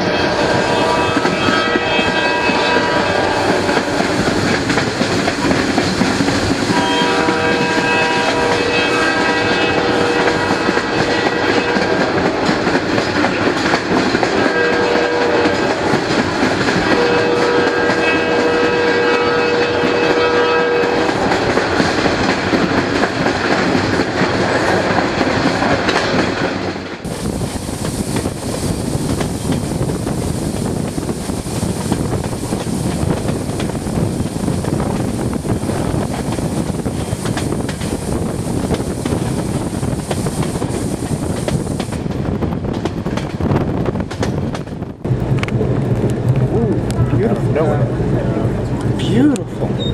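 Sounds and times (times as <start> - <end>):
locomotive horn: 0.0 - 4.3, 6.7 - 12.3, 14.3 - 15.9, 16.8 - 21.6
train rolling over rails: 0.0 - 49.9.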